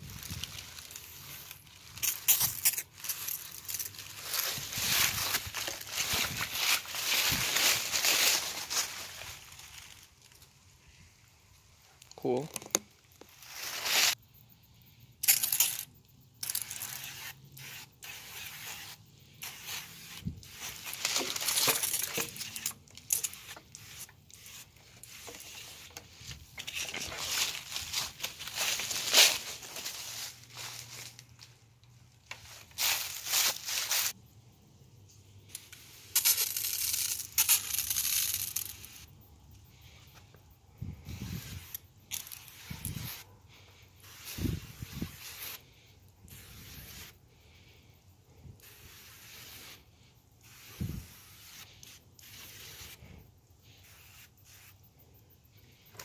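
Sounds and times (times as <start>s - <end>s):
spray-paint can hissing: 16.4s - 25.9s, 44.0s - 45.6s, 46.3s - 47.2s, 48.6s - 49.8s, 50.4s - 53.0s, 53.7s - 54.8s.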